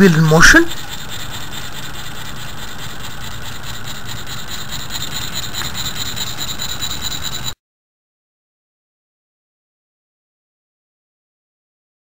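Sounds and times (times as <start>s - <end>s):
small engine running: 0.0s - 7.6s.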